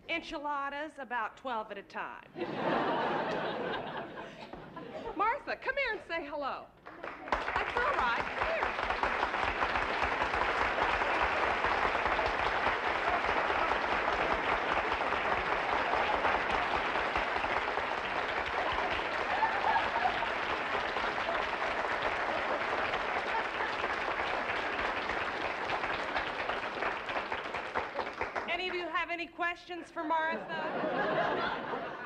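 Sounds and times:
audience applauding: 6.8s - 28.8s.

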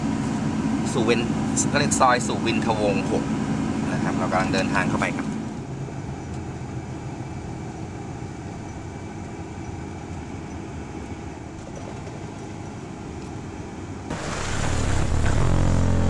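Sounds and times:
car road noise: 14.1s - 16.0s.

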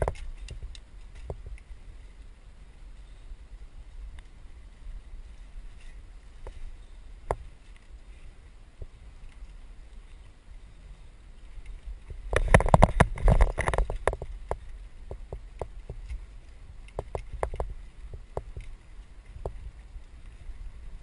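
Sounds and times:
wind and tyres rumbling: 0.0s - 21.0s
bike clattering and rattling: 12.3s - 16.0s.

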